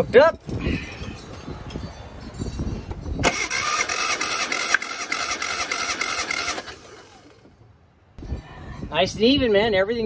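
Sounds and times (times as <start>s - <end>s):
starter motor cranking engine: 3.2s - 7.5s.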